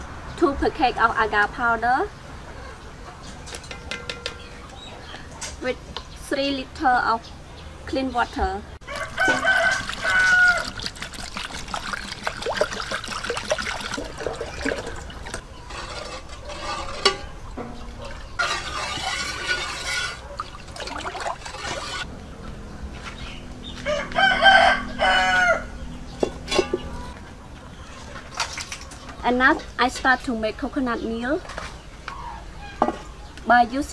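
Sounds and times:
rooster crowing: 0:08.8 - 0:10.8, 0:23.7 - 0:25.9
water pouring into metal pot: 0:09.0 - 0:15.4, 0:18.1 - 0:22.0.

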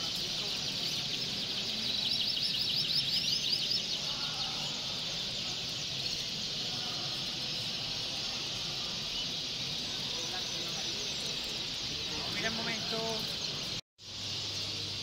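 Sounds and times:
bird fast trill: 0:00.0 - 0:15.0
canaries singing in chorus: 0:00.0 - 0:15.0.

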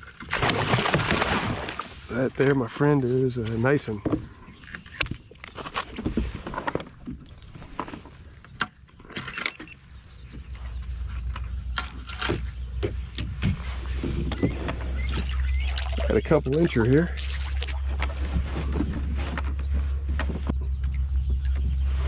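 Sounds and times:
low rumble: 0:10.5 - 0:22.0.

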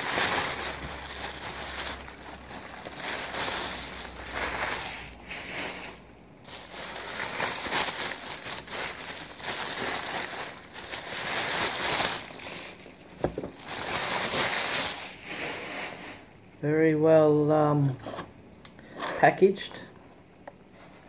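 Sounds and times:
packing material crinkling: 0:00.0 - 0:16.2.

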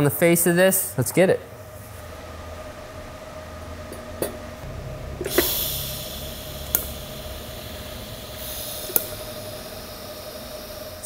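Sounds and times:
welding arc crack: 0:04.9 - 0:11.0
welding arc hiss: 0:05.2 - 0:11.0.

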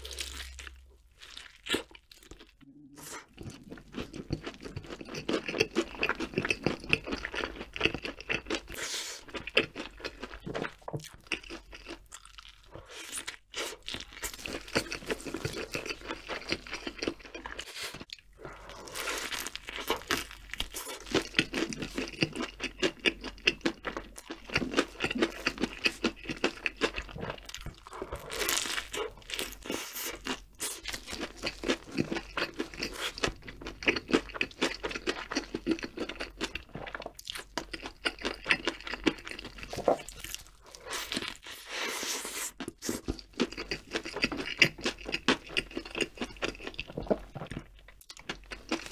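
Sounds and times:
person chewing crunchy food: 0:00.0 - 0:48.9.

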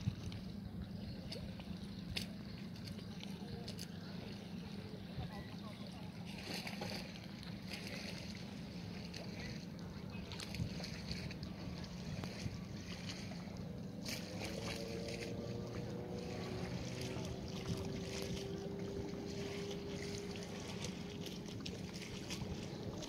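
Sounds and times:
boat engine hum: 0:00.0 - 0:23.0
water splashing against hull: 0:00.0 - 0:23.0.

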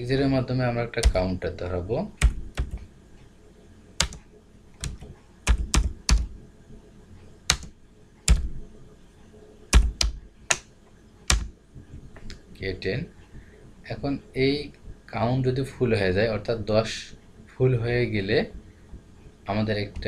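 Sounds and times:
computer keyboard keystrokes: 0:01.0 - 0:01.3, 0:02.2 - 0:02.9, 0:04.0 - 0:06.4, 0:07.5 - 0:08.6, 0:09.7 - 0:10.7, 0:11.3 - 0:11.5.

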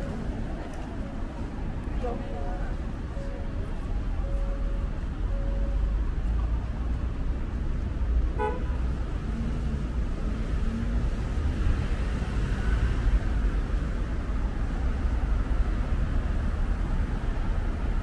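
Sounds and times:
street traffic rumble: 0:00.0 - 0:18.0
vehicle horn toot: 0:08.4 - 0:08.8.

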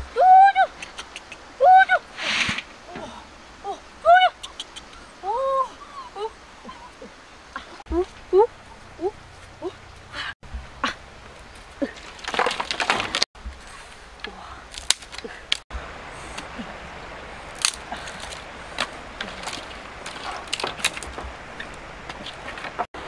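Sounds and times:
knife splitting bamboo cracking: 0:14.2 - 0:15.6, 0:17.5 - 0:21.2.

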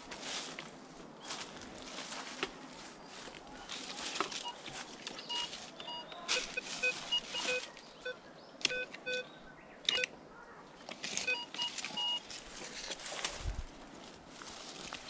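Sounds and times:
dry leaves rustling: 0:00.0 - 0:08.0, 0:10.8 - 0:15.0
metal detector beeps: 0:04.3 - 0:09.3, 0:09.9 - 0:10.1, 0:11.2 - 0:12.3.

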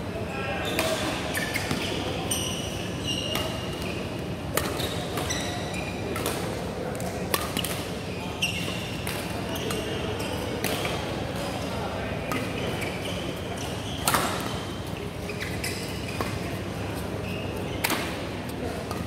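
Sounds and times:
court shoes squeaking: 0:00.3 - 0:19.0
rackets hitting shuttlecock: 0:04.5 - 0:05.3, 0:06.1 - 0:07.9, 0:10.6 - 0:11.0, 0:14.0 - 0:14.6, 0:17.8 - 0:19.0.

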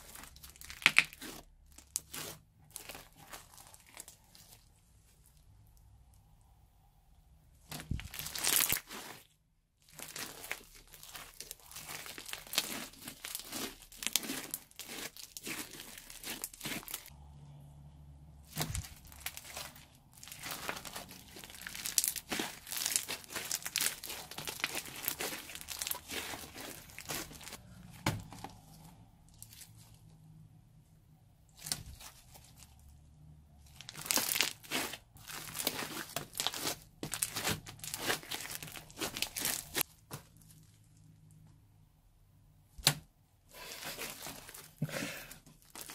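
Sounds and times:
slime crackling and popping: 0:00.0 - 0:04.5, 0:07.7 - 0:09.2, 0:09.9 - 0:17.1, 0:18.5 - 0:27.6, 0:33.7 - 0:39.9.

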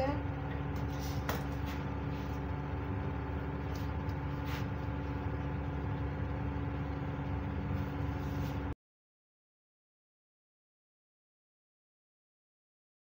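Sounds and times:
gas burners and boiling water: 0:00.0 - 0:08.8.

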